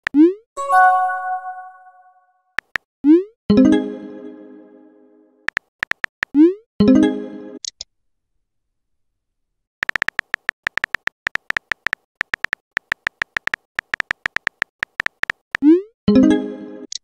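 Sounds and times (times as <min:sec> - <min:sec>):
chime-like tone: 0:00.6 - 0:02.2
keyboard typing clicks: 0:02.6 - 0:02.8, 0:05.5 - 0:06.4, 0:09.8 - 0:15.7.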